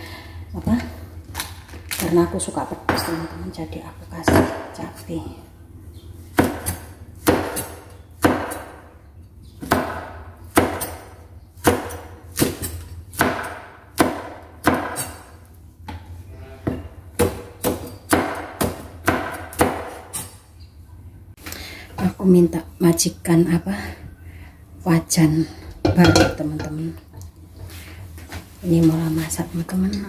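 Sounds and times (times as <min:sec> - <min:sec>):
knife chopping on wooden board: 0:06.4 - 0:08.8, 0:09.6 - 0:15.2, 0:17.2 - 0:20.3.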